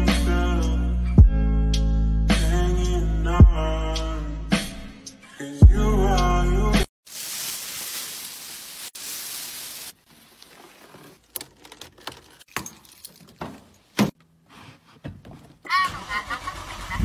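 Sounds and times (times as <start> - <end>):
music: 0.0 - 6.9
keys jingling: 11.5 - 14.0.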